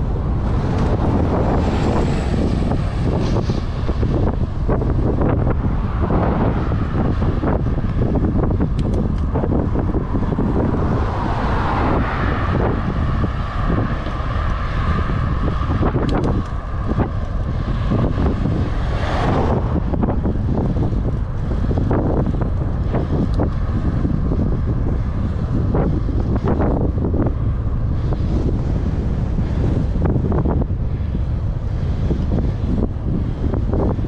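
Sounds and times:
high rushing sound: 0.0 - 16.0
wind buffeting microphone: 0.0 - 34.0.

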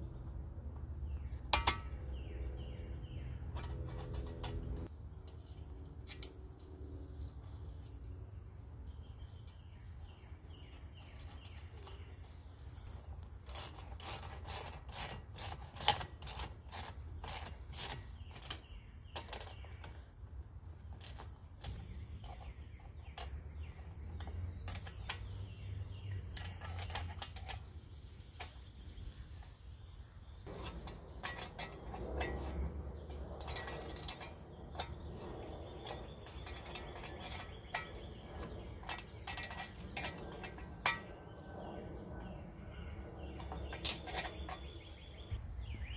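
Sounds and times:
steady low rumble: 30.4 - 45.9
wrenches and bolts clinking: 30.5 - 41.1, 43.4 - 45.4.

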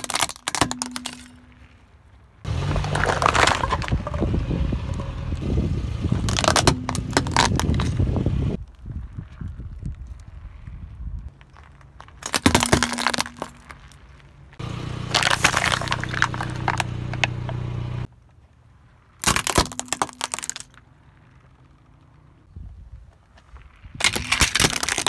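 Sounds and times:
plastic toy cracking: 0.0 - 1.3, 19.2 - 20.9, 24.0 - 25.0
plastic bottles crackling: 0.0 - 1.4, 15.1 - 16.8, 19.2 - 20.8, 24.0 - 25.0
tyre crunching plastic spoons: 0.0 - 1.6, 24.0 - 25.0.

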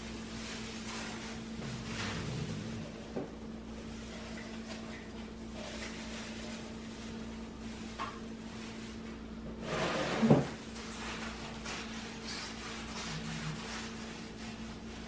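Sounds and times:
steady low hum: 0.0 - 9.5.

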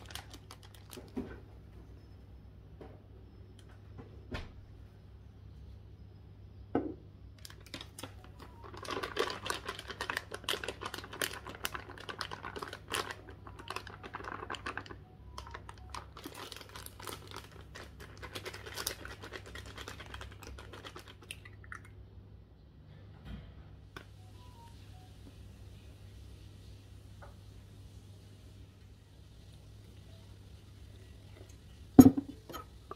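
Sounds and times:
plastic bag crinkling: 0.0 - 1.3, 7.4 - 21.4.

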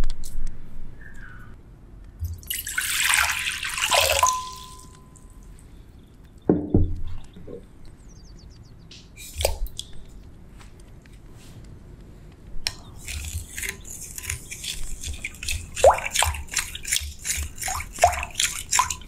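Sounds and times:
water pouring into bowl: 2.4 - 5.0, 13.0 - 19.0
knock: 6.5 - 7.0.

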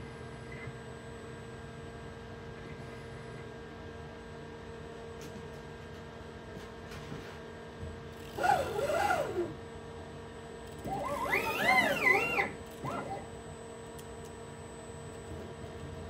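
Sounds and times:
steady machine hum: 0.0 - 16.0
motors whining: 8.2 - 9.6, 10.7 - 13.3.

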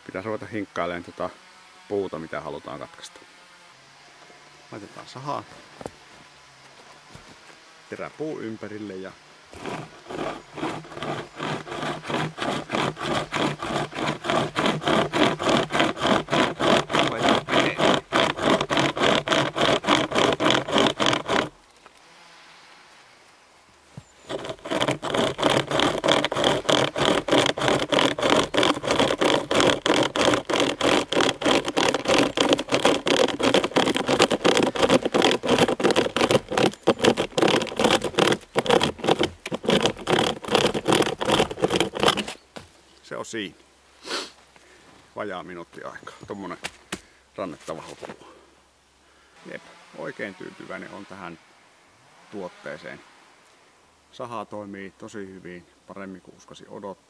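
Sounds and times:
chain saw rasping through log: 9.5 - 21.6, 24.0 - 42.4, 49.5 - 51.3.

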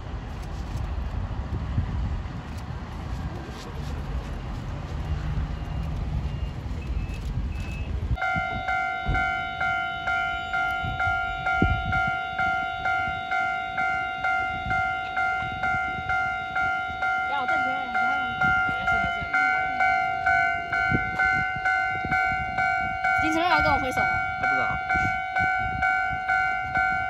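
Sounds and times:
diesel locomotive rumbling: 0.0 - 27.0
level-crossing warning bell: 8.2 - 27.0.

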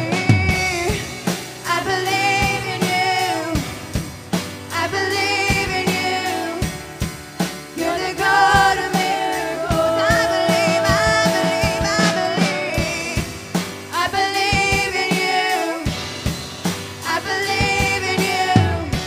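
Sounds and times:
woman singing: 0.0 - 4.0, 4.7 - 6.9, 7.7 - 16.3, 17.0 - 19.0
drum kit: 0.0 - 19.0
keyboard: 0.0 - 19.0.

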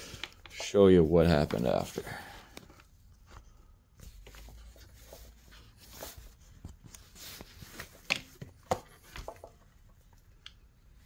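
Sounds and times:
rustling: 0.0 - 10.0.

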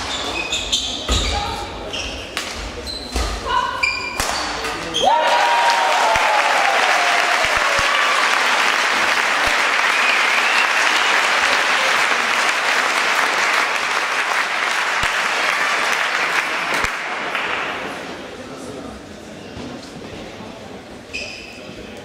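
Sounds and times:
crowd cheering: 5.0 - 17.6
spectators applauding: 5.1 - 17.7.

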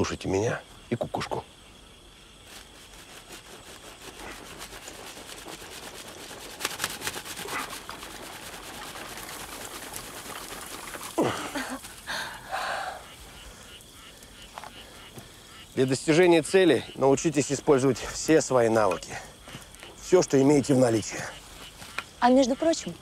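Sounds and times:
friction fire rubbing and rasping: 2.4 - 12.0.

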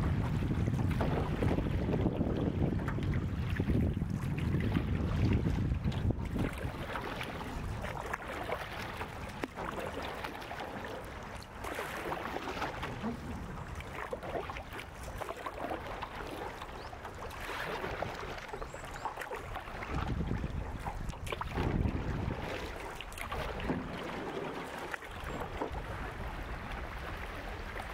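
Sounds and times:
wind buffeting microphone: 0.0 - 9.9, 11.7 - 16.1, 19.4 - 24.4
canoe paddle strokes in water: 0.0 - 27.9
water splashing and rushing: 0.0 - 27.9.

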